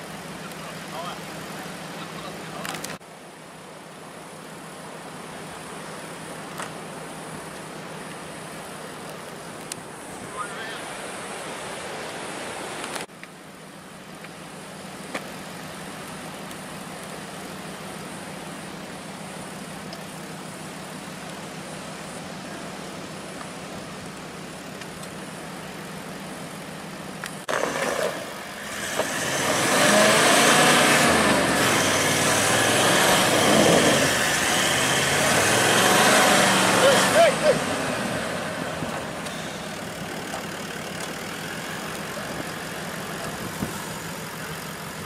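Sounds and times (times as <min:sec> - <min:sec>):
diesel engine idling and revving: 0:00.0 - 0:03.0, 0:13.5 - 0:45.0.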